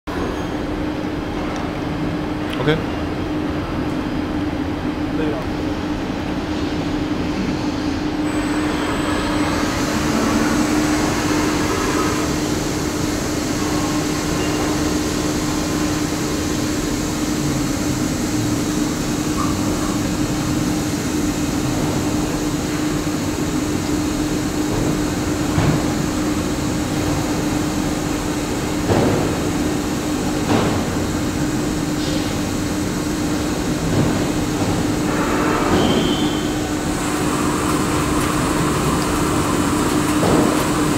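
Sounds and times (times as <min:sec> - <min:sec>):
lathe humming: 0:08.4 - 0:16.6, 0:36.7 - 0:40.9.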